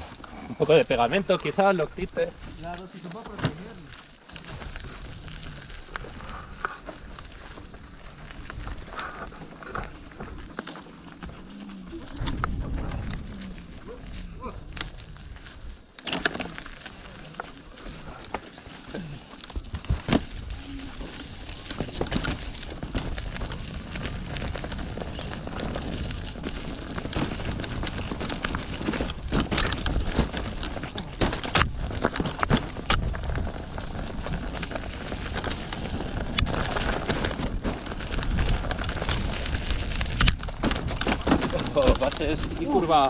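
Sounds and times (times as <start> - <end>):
mountain bike rattling: 0.0 - 43.0
wind buffeting microphone: 11.6 - 15.8
bike knocking over bumps: 19.5 - 43.0.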